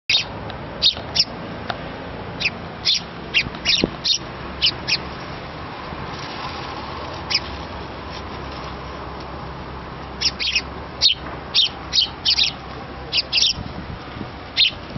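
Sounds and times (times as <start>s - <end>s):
sparrows chirping: 0.1s - 1.4s, 2.2s - 5.5s, 6.2s - 7.6s, 9.9s - 14.9s
steady background noise: 0.1s - 14.9s.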